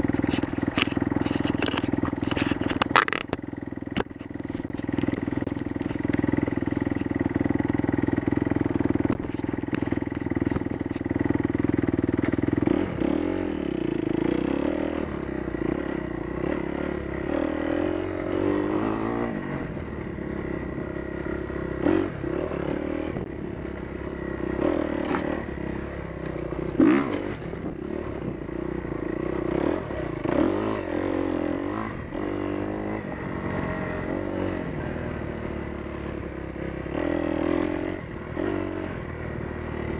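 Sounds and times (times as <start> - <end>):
motocross engine revving: 3.9 - 19.7, 21.1 - 38.9
sharp knocks and clatter: 9.0 - 11.2.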